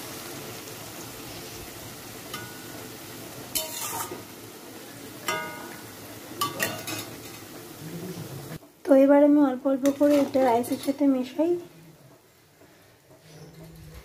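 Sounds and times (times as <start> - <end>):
vegetables sizzling in a pan: 0.0 - 14.0
metal spatula clinking on pan: 2.3 - 2.7, 3.5 - 4.2, 5.2 - 5.8, 6.4 - 7.4, 9.8 - 11.0.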